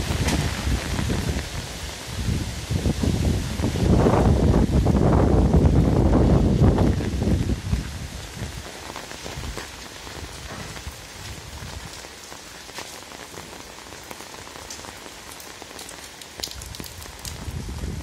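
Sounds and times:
wind rumble on microphone: 0:00.0 - 0:12.1, 0:16.4 - 0:18.0
rain falling: 0:00.0 - 0:18.0.

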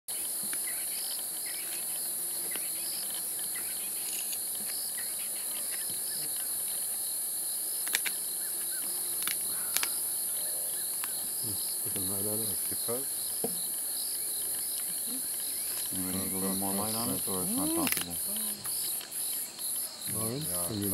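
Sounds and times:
crickets and night insects chirping: 0:00.1 - 0:20.9.

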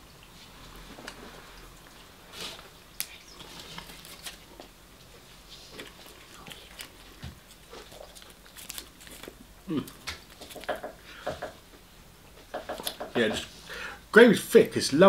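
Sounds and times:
man chewing: 0:00.2 - 0:11.4
paper wrapping handling: 0:03.0 - 0:04.7, 0:05.6 - 0:10.8.

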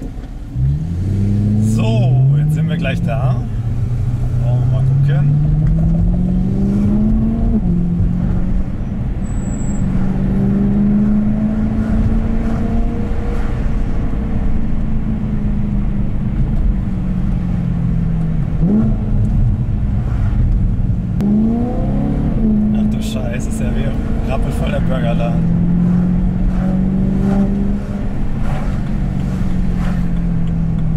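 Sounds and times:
car engine driving: 0:00.0 - 0:30.9
engine revving: 0:00.5 - 0:08.8, 0:09.8 - 0:14.6, 0:18.4 - 0:20.4, 0:21.2 - 0:30.9.

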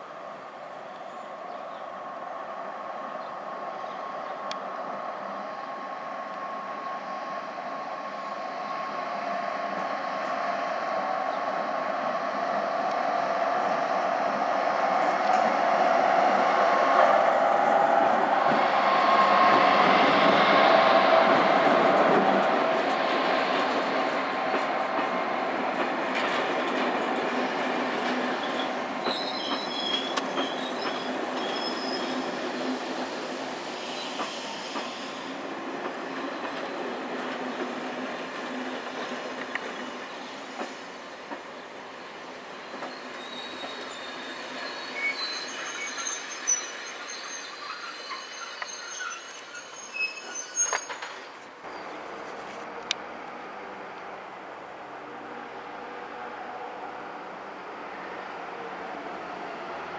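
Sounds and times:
train rolling slowly: 0:00.0 - 0:59.9
wheels clacking on track: 0:18.1 - 0:33.2, 0:35.7 - 0:41.7, 0:42.7 - 0:46.3
train wheels squealing: 0:27.4 - 0:35.4, 0:42.4 - 0:52.0.

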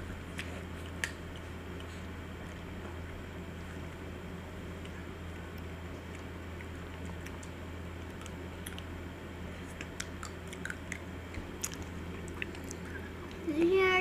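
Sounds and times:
steady low hum: 0:00.0 - 0:14.0
lip smacks and chewing clicks: 0:00.2 - 0:04.0, 0:04.8 - 0:09.0, 0:09.7 - 0:13.4.

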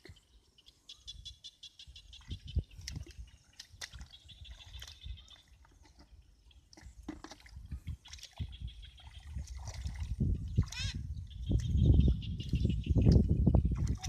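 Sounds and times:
feet splashing in muddy water: 0:02.3 - 0:11.8, 0:13.7 - 0:14.0.

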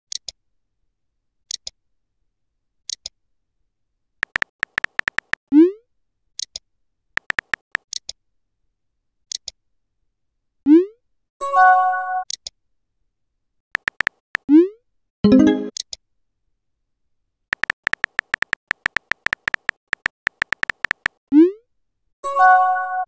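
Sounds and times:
keyboard tapping: 0:04.2 - 0:05.4, 0:07.2 - 0:07.8, 0:13.8 - 0:14.4, 0:17.6 - 0:21.2
paired tick: 0:04.2 - 0:05.4, 0:07.2 - 0:07.8, 0:13.8 - 0:14.2, 0:17.6 - 0:21.2.

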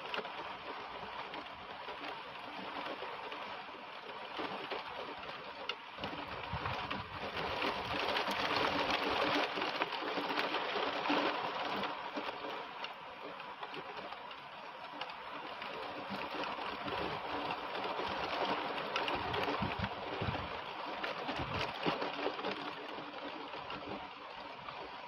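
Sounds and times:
heavy rain pouring through trees: 0:00.0 - 0:25.0.

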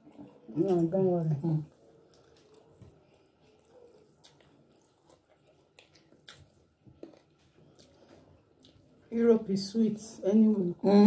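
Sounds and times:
person chewing: 0:01.7 - 0:09.0.

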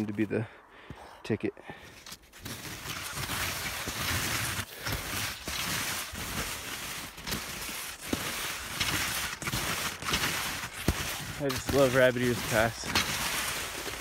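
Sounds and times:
skis hissing through snow: 0:02.1 - 0:14.0.

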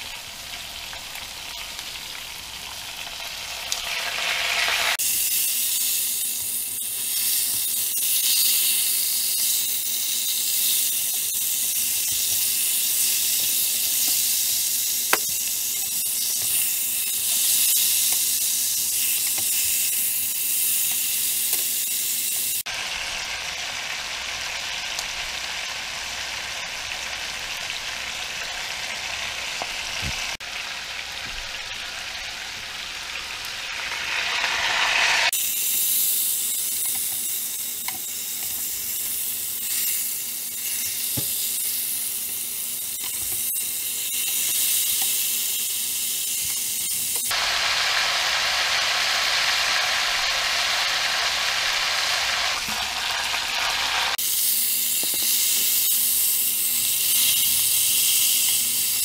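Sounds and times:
meat sizzling in hot oil: 0:00.0 - 0:59.0
tongs tapping: 0:37.8 - 0:39.1.

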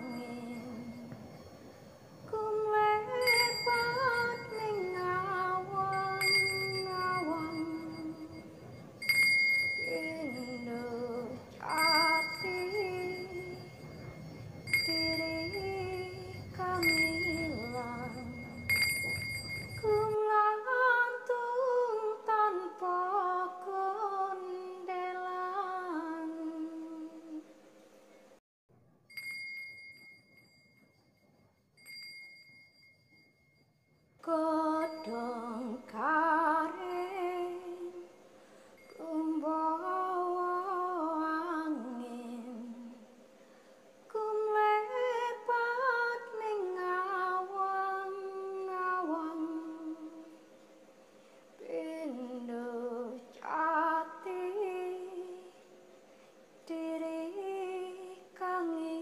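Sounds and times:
woman humming melody: 0:00.0 - 0:01.4
high steady tone: 0:00.0 - 0:20.2
faint steady note: 0:00.0 - 0:28.4, 0:29.1 - 0:59.0.

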